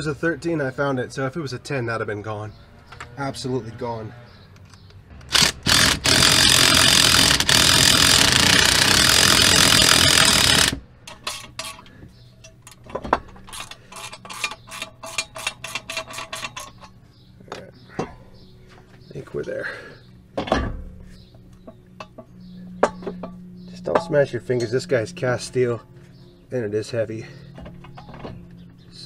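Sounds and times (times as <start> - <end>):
cordless power tool running: 5.2 - 10.8
ratchet wrench clicking: 5.2 - 11.8.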